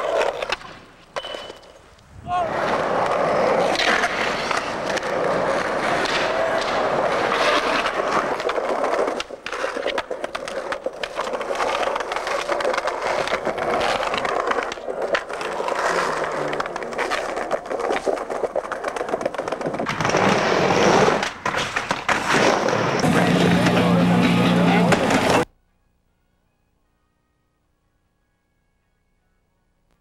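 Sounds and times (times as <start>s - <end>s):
skateboard wheels rumbling: 0.0s - 25.5s
skateboard clacks and knocks: 2.6s - 24.1s.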